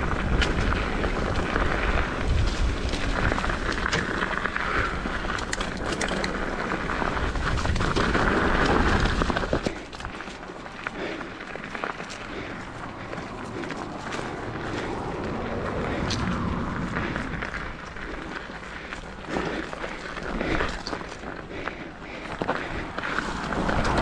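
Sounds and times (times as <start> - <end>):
bike tyres rumbling over rocks: 0.0 - 24.0
bike knocks and rattles: 0.2 - 10.4.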